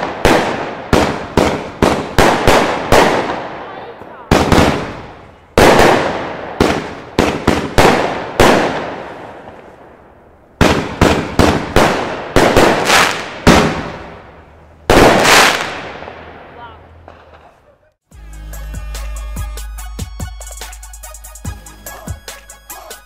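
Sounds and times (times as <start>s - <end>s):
firework bangs with echo: 0.0s - 10.0s, 10.6s - 17.6s.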